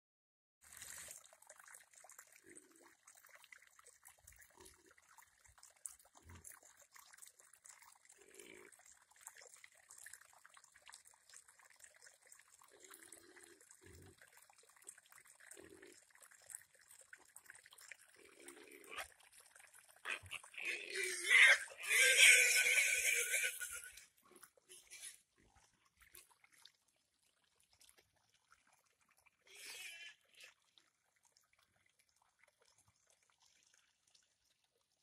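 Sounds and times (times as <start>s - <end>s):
pigs grunting: 18.2s - 19.1s, 20.0s - 24.0s.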